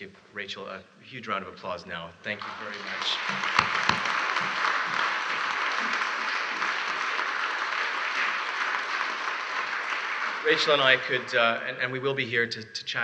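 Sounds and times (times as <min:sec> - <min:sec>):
congregation applauding: 0:02.3 - 0:11.7.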